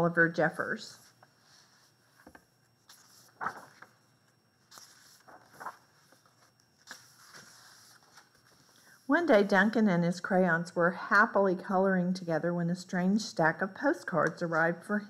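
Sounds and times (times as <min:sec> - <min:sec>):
book pages turning: 0:01.0 - 0:08.8.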